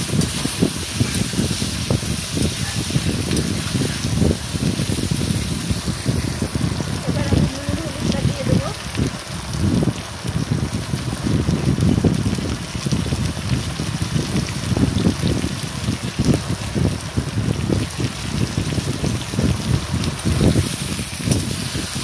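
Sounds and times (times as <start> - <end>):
vegetables sizzling in hot oil: 0.0 - 22.0.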